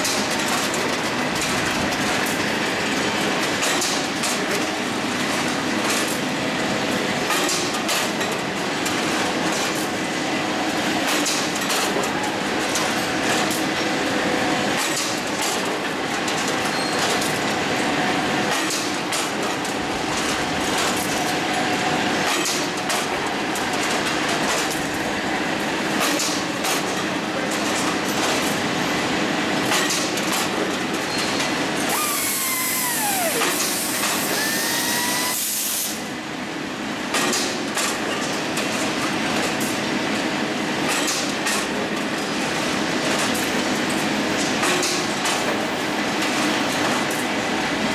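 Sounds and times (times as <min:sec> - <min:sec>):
continuous metallic clatter: 0:00.0 - 0:10.0, 0:10.7 - 0:13.9, 0:14.7 - 0:17.6, 0:18.4 - 0:25.1, 0:25.8 - 0:28.7, 0:29.5 - 0:31.9, 0:40.8 - 0:47.4
falling machine whine: 0:31.9 - 0:35.6.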